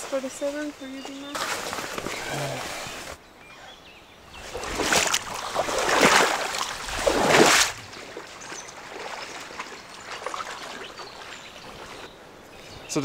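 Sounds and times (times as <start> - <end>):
wading through shallow water: 0.0 - 3.2, 4.2 - 12.4.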